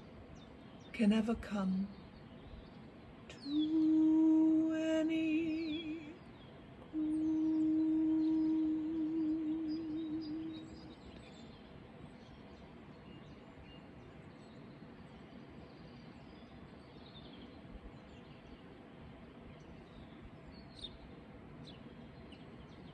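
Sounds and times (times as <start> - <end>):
bird chirps: 0.0 - 18.7, 19.4 - 22.9
low tone: 3.3 - 6.2, 6.9 - 11.0.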